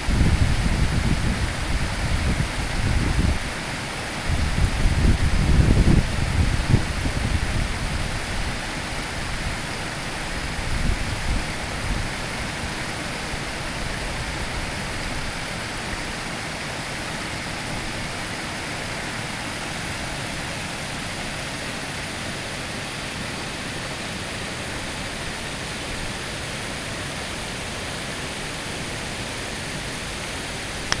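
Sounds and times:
creek water rushing over rocks: 0.0 - 31.0.

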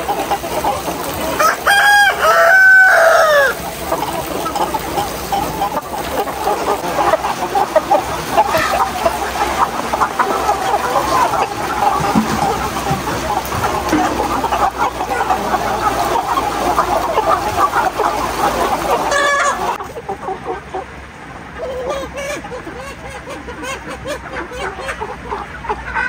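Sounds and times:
chickens clucking: 0.0 - 26.0
rooster crowing: 1.4 - 3.6.

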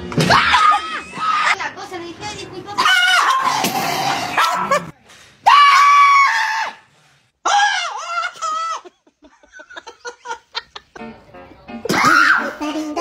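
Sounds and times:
high-pitched screams: 2.8 - 4.7, 5.4 - 8.4.

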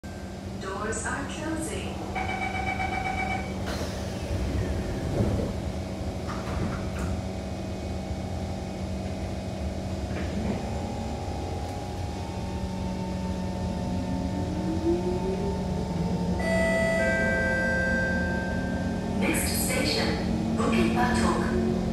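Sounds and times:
train car humming: 0.0 - 21.9
door closing warning tones: 2.2 - 3.9
traction motor whine: 10.8 - 21.9.

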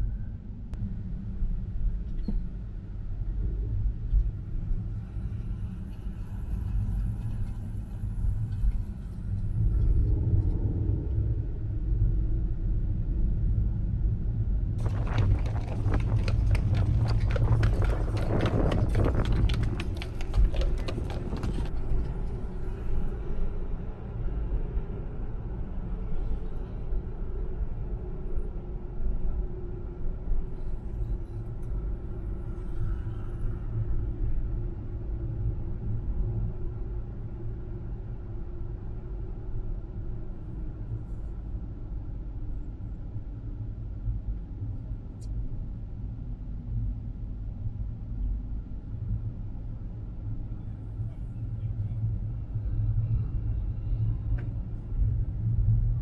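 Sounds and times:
car road rumble: 14.7 - 24.1, 50.4 - 56.0
wagon clattering: 14.8 - 21.7
horse hooves clip-clopping: 14.8 - 22.4.

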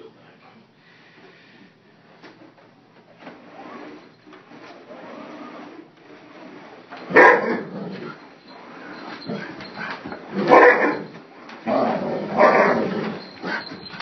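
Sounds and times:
dog barking: 7.1 - 7.6, 10.5 - 11.1.

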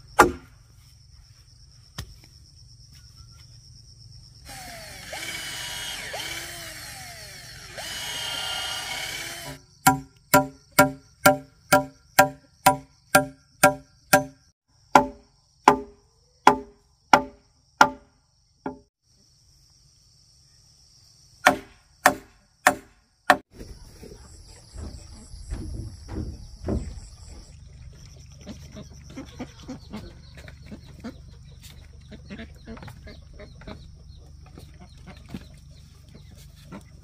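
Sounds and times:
chopping on hollow bamboo: 0.2 - 0.5, 9.8 - 18.1, 18.7 - 18.9, 21.4 - 23.5
insect buzzing: 3.8 - 10.7
low thumps: 24.7 - 27.4.

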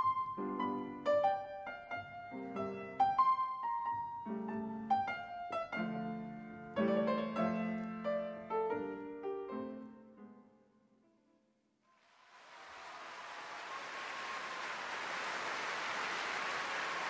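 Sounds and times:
solo piano music: 0.0 - 10.7.

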